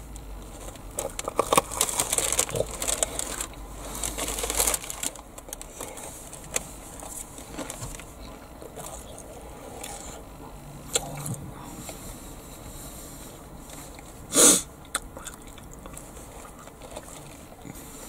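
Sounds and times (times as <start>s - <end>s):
crispy batter crunching: 0.0s - 11.4s, 14.8s - 18.0s
quiet chewing: 5.2s - 14.2s, 14.8s - 18.0s.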